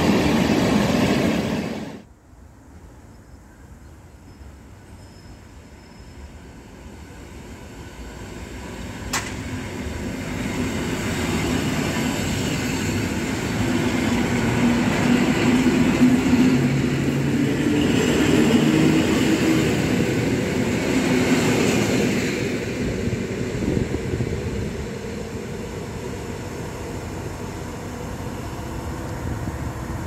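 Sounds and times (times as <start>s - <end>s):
train wheels rolling on rails: 4.8s - 30.0s
sharp click: 9.1s - 9.4s.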